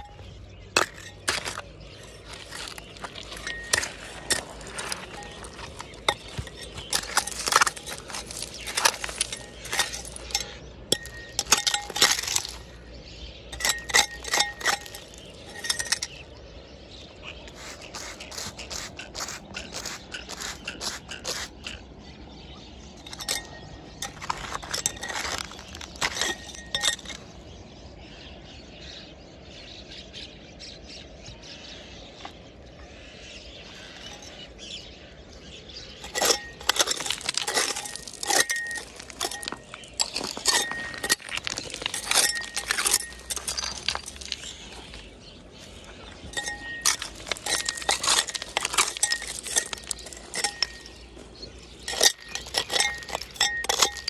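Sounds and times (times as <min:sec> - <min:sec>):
metal scraper scraping dirt: 0:00.0 - 0:16.4, 0:17.2 - 0:21.8, 0:22.9 - 0:27.3, 0:35.9 - 0:54.0
metallic rings: 0:00.0 - 0:16.4, 0:22.8 - 0:27.4, 0:35.9 - 0:54.0
pebbles clinking: 0:00.0 - 0:16.4, 0:17.5 - 0:21.8, 0:23.0 - 0:27.4, 0:36.0 - 0:54.0.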